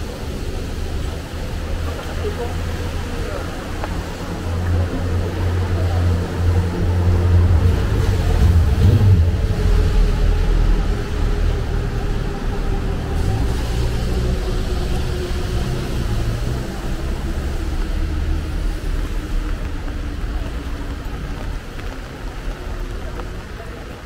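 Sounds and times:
tyres hissing on wet road: 0.0 - 24.0
vehicle engine rumble: 0.0 - 24.0.

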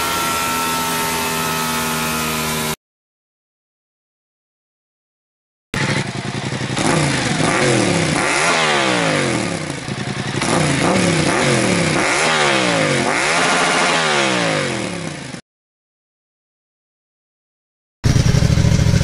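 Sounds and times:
motorcycle engine revving: 0.0 - 2.8, 5.8 - 15.4, 18.0 - 19.0.

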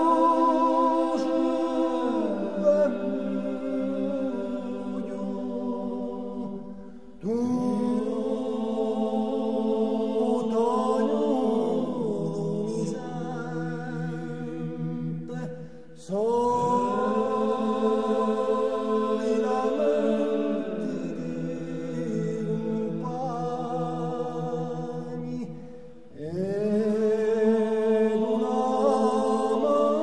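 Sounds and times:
male choir singing a cappella: 0.0 - 30.0.

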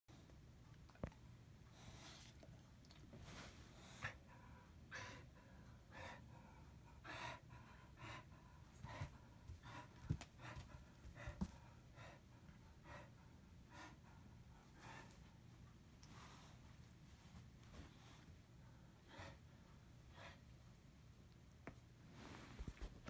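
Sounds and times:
dog gasping breaths: 3.2 - 15.3.

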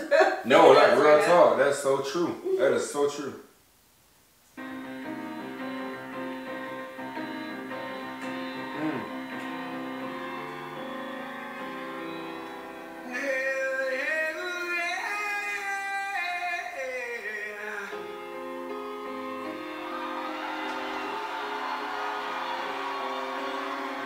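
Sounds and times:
grand piano playing: 4.6 - 13.2, 18.0 - 24.0
man singing high: 13.0 - 18.1.

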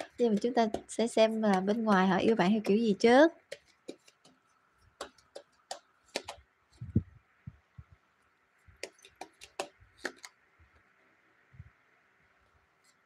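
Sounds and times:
cards snapping and tapping: 0.0 - 1.0, 3.5 - 4.4, 5.0 - 6.4, 8.8 - 10.4.

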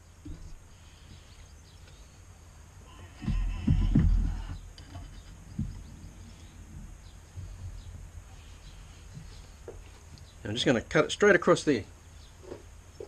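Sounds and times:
heavy knocks on bench vise: 3.2 - 5.9
handling metal parts: 3.8 - 6.6.

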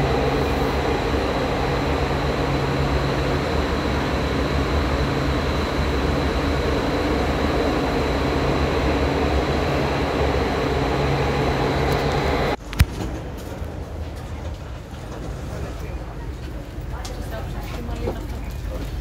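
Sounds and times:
faint high whine: 0.0 - 12.6
train wheels rumbling on track: 0.0 - 19.0.

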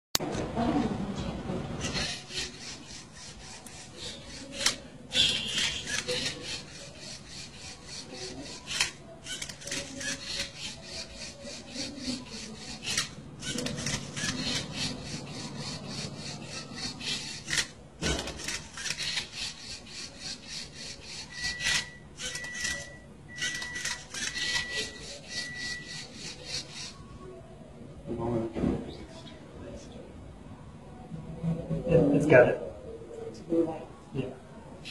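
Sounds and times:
robot plastic rasping and clicking: 1.8 - 27.0.

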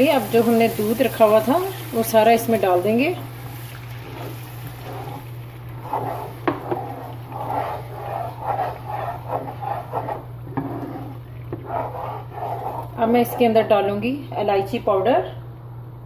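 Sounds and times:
bubbling and sizzling: 0.0 - 14.0
milk pouring into pan: 3.2 - 9.7.

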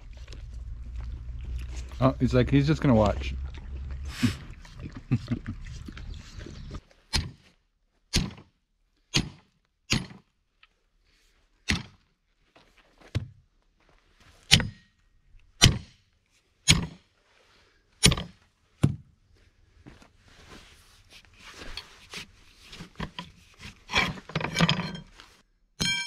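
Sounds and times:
sledgehammer striking steel: 9.1 - 10.2, 14.5 - 14.9, 16.7 - 17.0, 25.8 - 26.0.

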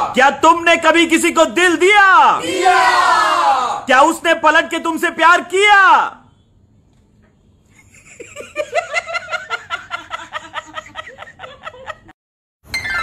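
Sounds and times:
person laughing rhythmically: 7.8 - 12.2.

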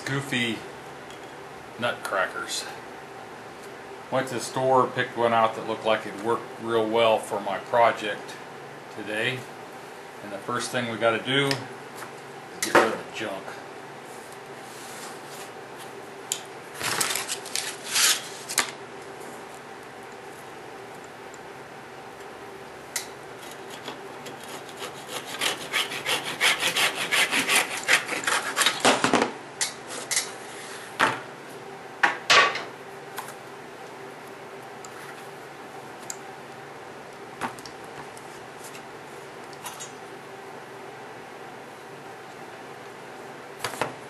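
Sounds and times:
hand tool cutting wood: 24.3 - 28.8.

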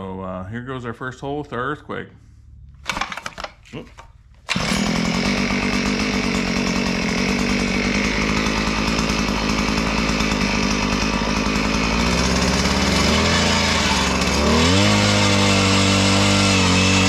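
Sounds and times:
auger engine running: 4.5 - 17.0.

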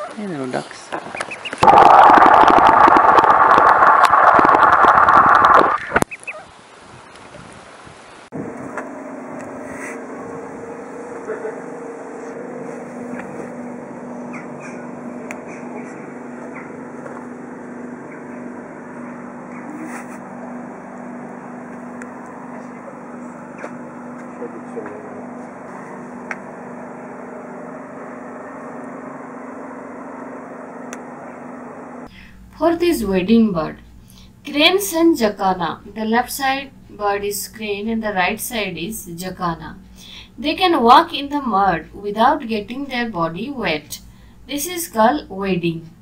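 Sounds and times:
low machine hum: 0.0 - 46.0
ducks clicking and rasping: 0.9 - 1.6
duckling peeps: 1.0 - 1.6, 5.8 - 6.5.

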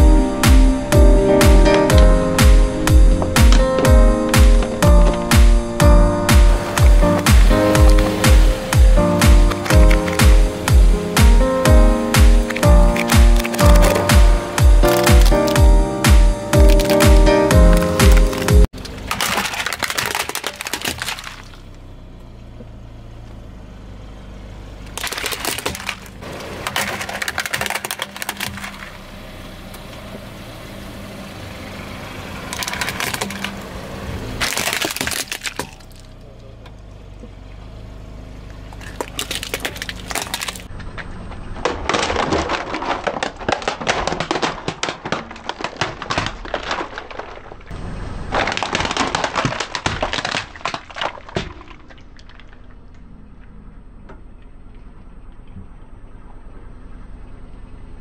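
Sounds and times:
plastic toys cracking under tyre: 6.3 - 21.8, 24.8 - 29.0, 32.4 - 33.8, 34.4 - 36.3, 38.6 - 53.6
low steady hum: 49.2 - 58.0.

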